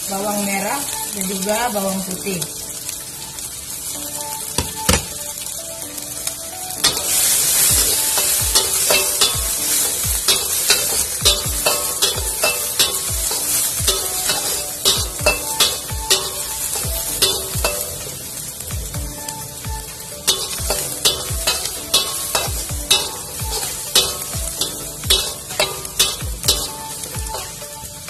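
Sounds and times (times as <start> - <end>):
food sizzling in oil: 0.0 - 28.0
metal spatula scraping wok: 6.8 - 18.2, 20.2 - 27.6.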